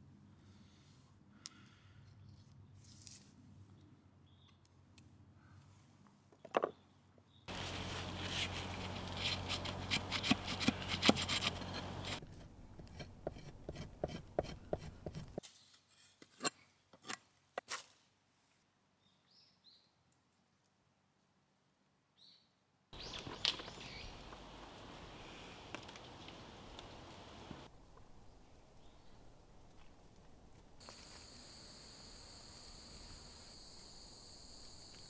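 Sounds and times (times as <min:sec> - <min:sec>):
knife scraping bark on wood: 0:07.8 - 0:16.5.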